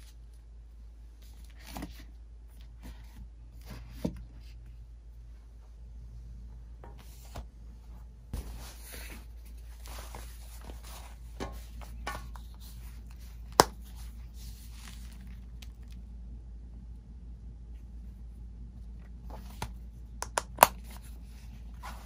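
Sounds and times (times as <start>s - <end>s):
packaging rustling and crinkling: 8.4s - 16.0s.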